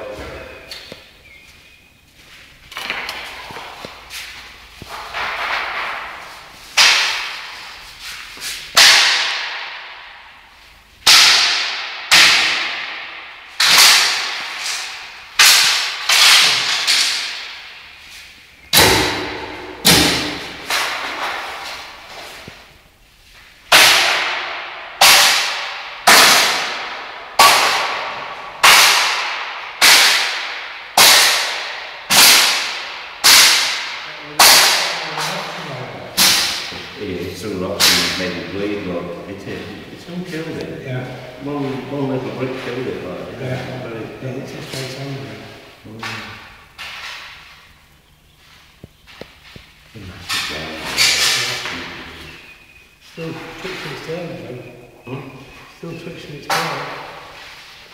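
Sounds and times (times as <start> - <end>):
stick whacking on tiled floor: 2.8 - 10.4, 11.0 - 22.6, 23.7 - 35.4, 36.2 - 36.8.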